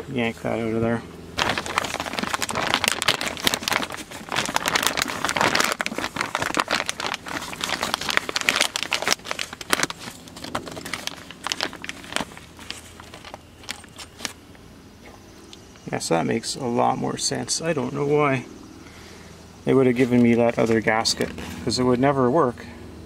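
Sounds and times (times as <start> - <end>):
plastic packaging crinkling: 1.4 - 14.4, 19.9 - 21.7.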